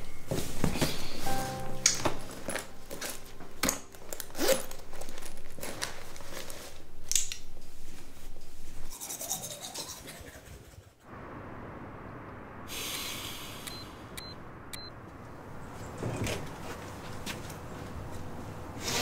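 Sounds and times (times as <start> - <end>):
handbag rustling: 2.0 - 7.0.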